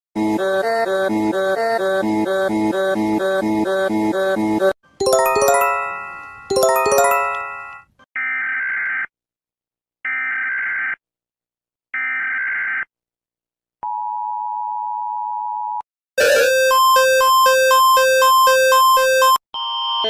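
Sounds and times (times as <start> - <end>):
synthesized alert chime: 5.0 - 7.8.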